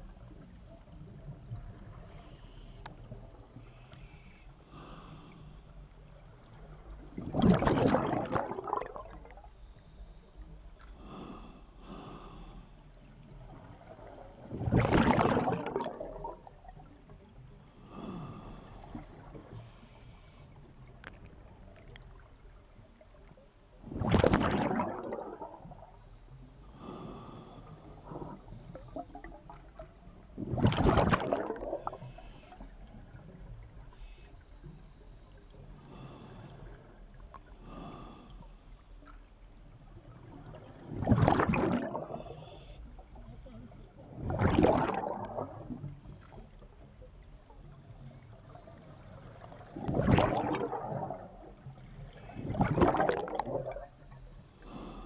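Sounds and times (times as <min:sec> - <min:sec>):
diver exhaling bubbles underwater: 0:07.2 - 0:09.4, 0:14.5 - 0:16.5, 0:23.8 - 0:26.0, 0:30.4 - 0:32.1, 0:40.9 - 0:42.5, 0:44.1 - 0:45.9, 0:49.8 - 0:51.6, 0:52.3 - 0:54.0.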